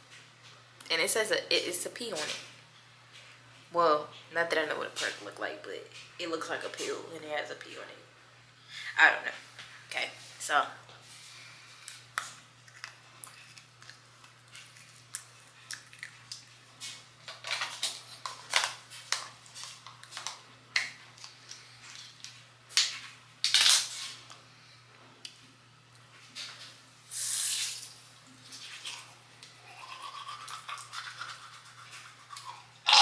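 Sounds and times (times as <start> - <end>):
crunching tablet in mouth: 11.9 - 16.6, 28.6 - 33.0.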